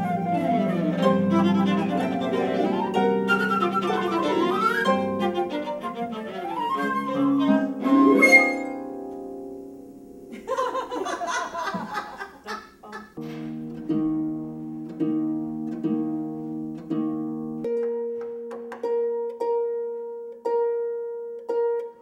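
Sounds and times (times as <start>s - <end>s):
chamber music chord: 0.0s - 10.3s
harp plucked notes: 0.0s - 10.3s, 13.2s - 22.0s.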